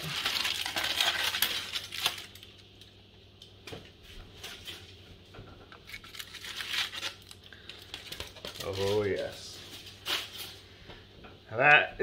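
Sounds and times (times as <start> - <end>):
aluminium foil crinkling: 0.0 - 3.0, 5.8 - 10.7.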